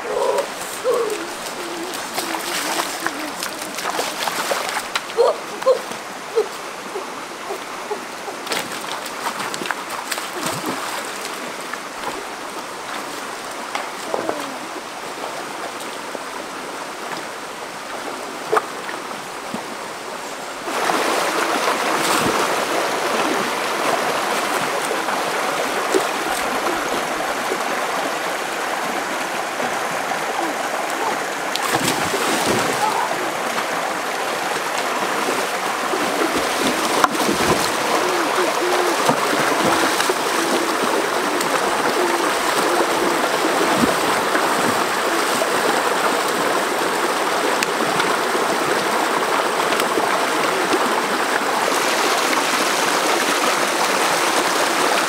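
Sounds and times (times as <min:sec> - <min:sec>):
people wading and splashing: 0:00.0 - 0:14.9, 0:20.5 - 0:55.0
rocky stream running: 0:00.0 - 0:55.0.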